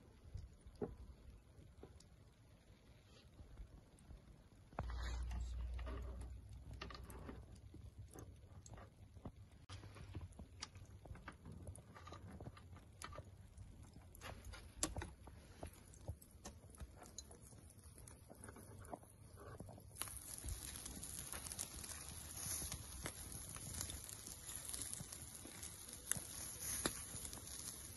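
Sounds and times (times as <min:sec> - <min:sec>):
steady high hiss: 0:19.9 - 0:27.9
metal skewers clicking on grill: 0:20.0 - 0:27.9.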